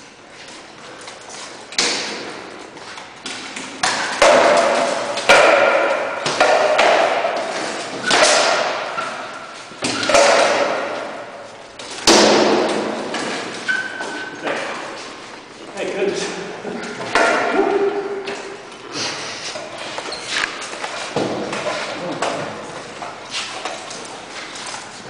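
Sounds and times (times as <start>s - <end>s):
swords striking shields: 1.8s - 2.5s, 3.3s - 15.0s, 17.0s - 18.4s.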